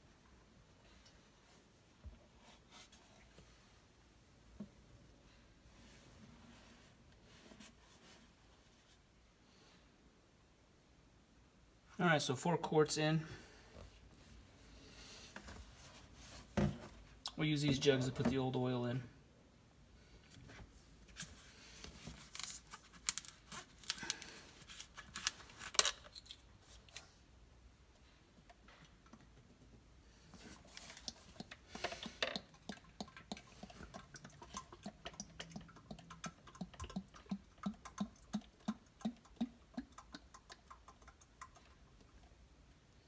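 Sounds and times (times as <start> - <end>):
plastic jugs clicking and rattling: 16.5 - 17.0, 30.4 - 41.7.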